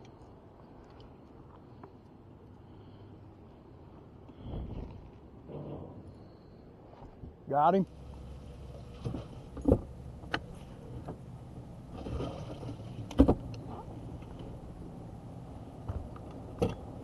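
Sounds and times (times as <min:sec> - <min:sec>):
low steady hum: 0:00.0 - 0:17.0
knocks and thumps on a boat: 0:08.8 - 0:11.2, 0:11.9 - 0:14.5.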